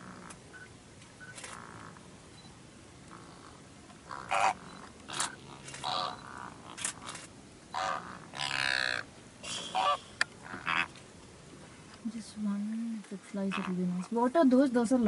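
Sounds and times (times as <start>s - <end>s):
flamingos honking: 3.1s - 7.1s, 7.7s - 11.0s, 13.4s - 14.1s
long wavering flamingo call: 7.7s - 10.9s.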